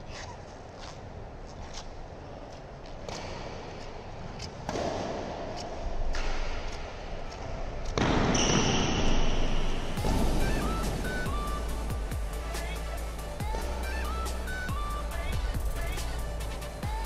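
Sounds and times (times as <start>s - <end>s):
shoe squeak on floor: 0.0s - 2.0s, 8.3s - 9.8s
racket hitting shuttlecock: 3.0s - 10.2s
background music: 9.3s - 17.0s.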